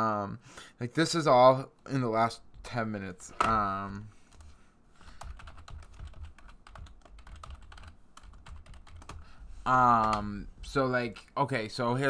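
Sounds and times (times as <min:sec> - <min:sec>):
keyboard typing: 0:05.1 - 0:09.3.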